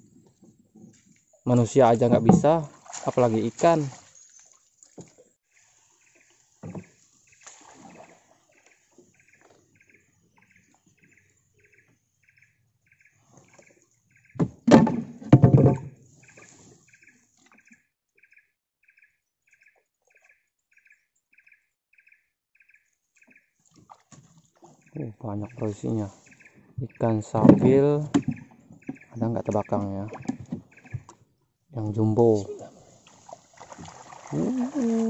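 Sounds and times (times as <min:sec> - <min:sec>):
clattering and splashing: 0:01.9 - 0:05.4, 0:14.4 - 0:16.6, 0:23.6 - 0:24.8, 0:27.2 - 0:31.2, 0:33.0 - 0:35.0
bird chirping: 0:06.0 - 0:14.4, 0:16.2 - 0:23.6, 0:24.8 - 0:27.5, 0:28.1 - 0:31.5.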